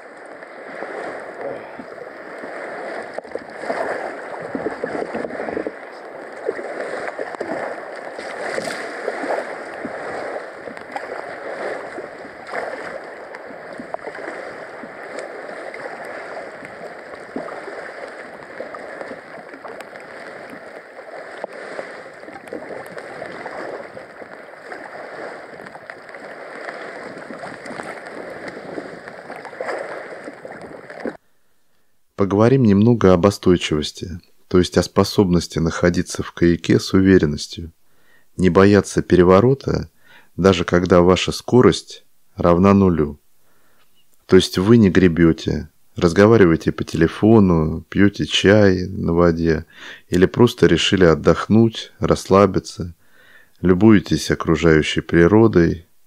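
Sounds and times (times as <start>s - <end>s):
water gurgling around kayak: 0.0s - 31.2s.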